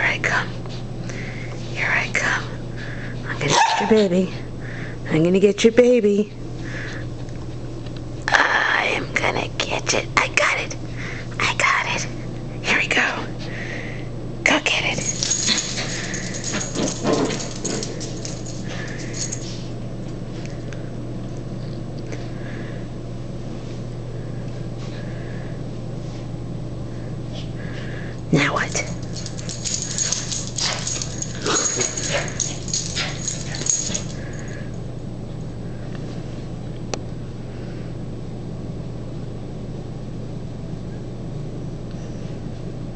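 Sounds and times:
steady low hum: 0.0 - 42.9
dog claws clicking on tile: 15.0 - 19.4, 28.7 - 34.5.

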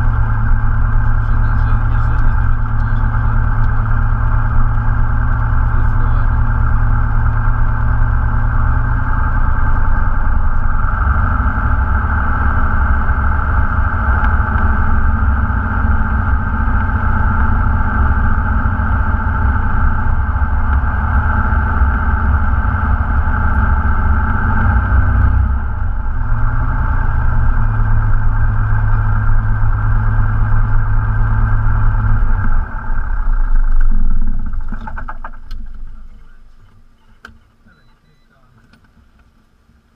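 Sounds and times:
aircraft piston engine idling: 0.0 - 24.4.

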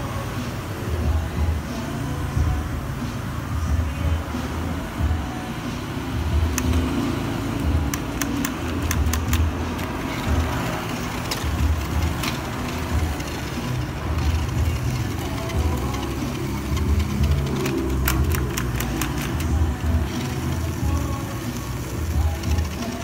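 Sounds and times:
rc truck motors and gearboxes: 6.0 - 23.0
plastic parts clicking: 6.5 - 6.9, 7.6 - 23.0.

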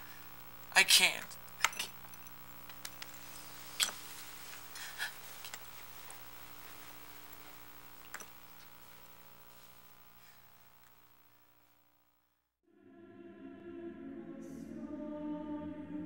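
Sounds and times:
steady low hum: 0.0 - 12.3
pottery shards clicking on a table: 1.2 - 4.0.

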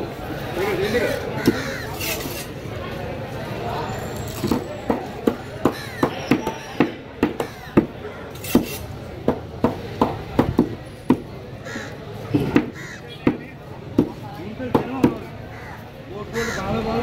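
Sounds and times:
knife chopping on wooden board: 4.4 - 11.3.

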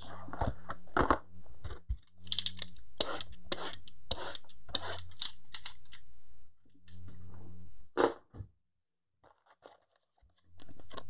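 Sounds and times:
low hum: 0.0 - 8.0.

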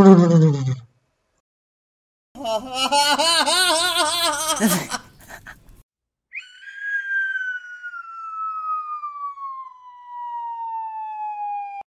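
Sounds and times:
whistle-like tone sliding down: 6.3 - 11.8.

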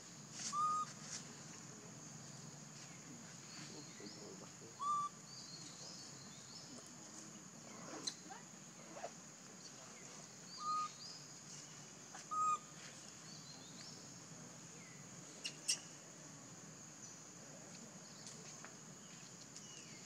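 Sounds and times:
faint chirps: 0.3 - 20.0
short whistled calls: 0.4 - 1.0, 4.8 - 5.8, 10.5 - 11.2, 12.2 - 12.7.

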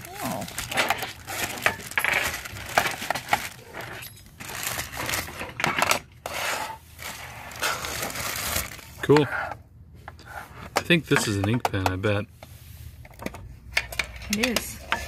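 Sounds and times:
plastic bag crinkling: 0.0 - 5.6, 7.0 - 9.0.

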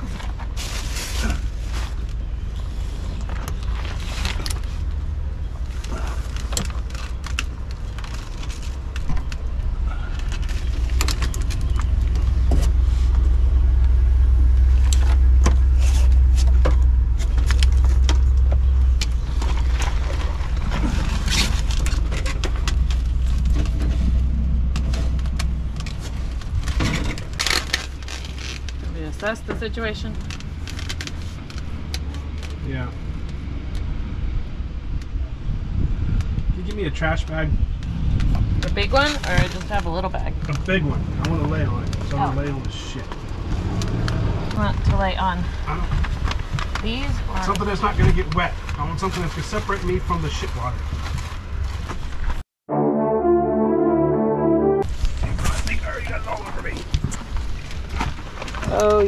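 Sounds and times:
steady low rumble: 0.0 - 29.4.

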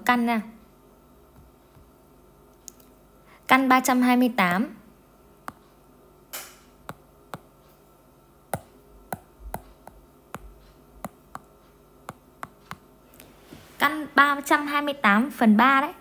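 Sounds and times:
taps on glass screen: 8.6 - 11.5, 12.1 - 12.9
soft brushing sound: 13.2 - 14.0.

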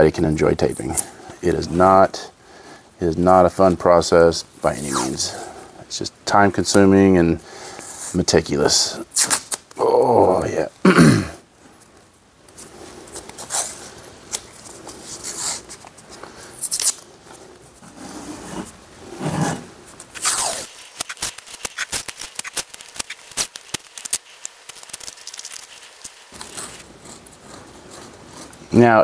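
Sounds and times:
tape crackling: 9.0 - 10.9, 11.6 - 28.8
tape screeching off roll: 9.1 - 9.6, 16.6 - 17.0, 17.9 - 26.9.

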